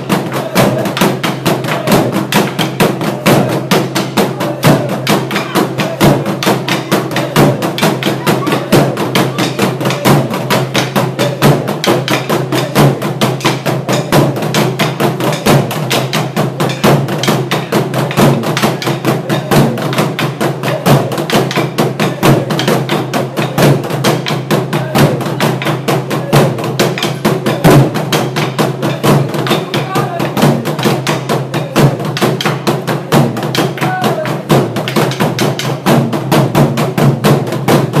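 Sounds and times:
drum ensemble beating drums: 0.0s - 38.0s.

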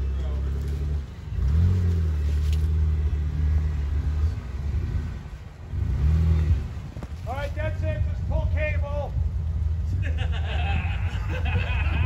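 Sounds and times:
engine revving under load: 0.0s - 7.2s.

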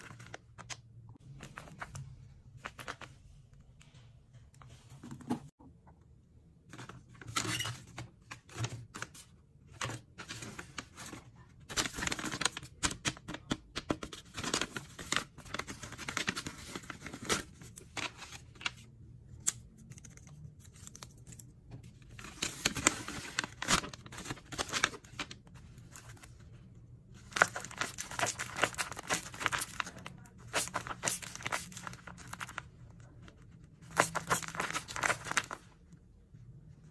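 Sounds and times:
paper bags crinkling: 27.3s - 32.6s, 33.9s - 35.6s.

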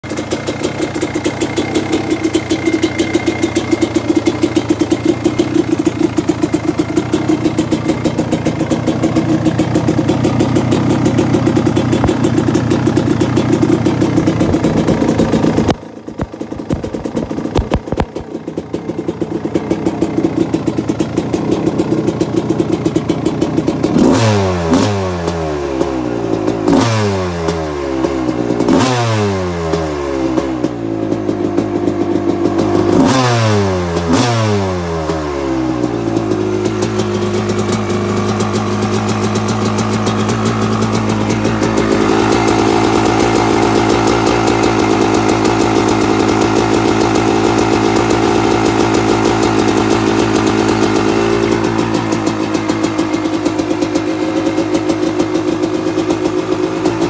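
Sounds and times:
two-stroke engine idling and revving: 0.0s - 57.0s.

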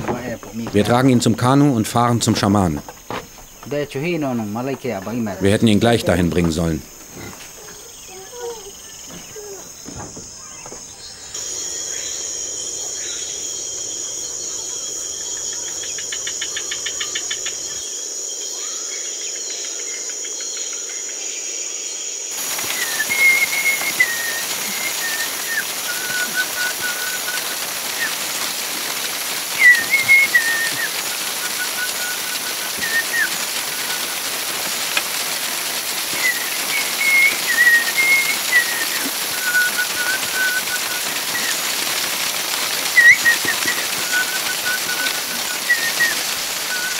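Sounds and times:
night insects shrilling: 0.0s - 46.9s
person whistling short phrases: 43.0s - 46.2s.

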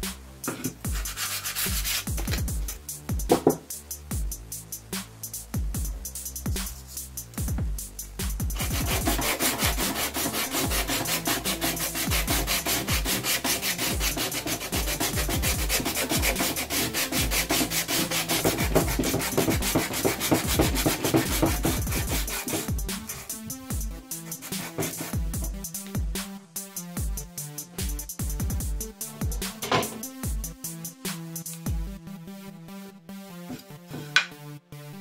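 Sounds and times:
electronic background music: 0.0s - 35.0s
hand sanding wood: 0.6s - 2.3s, 8.6s - 25.6s.

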